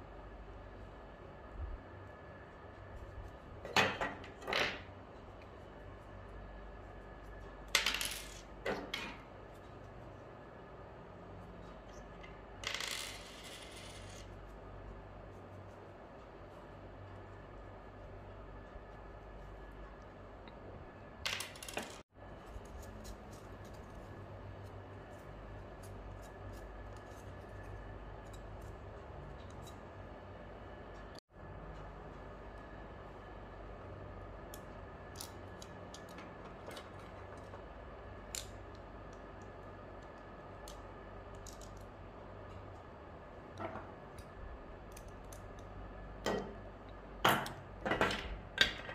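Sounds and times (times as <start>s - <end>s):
steady background hum: 0.0s - 48.9s.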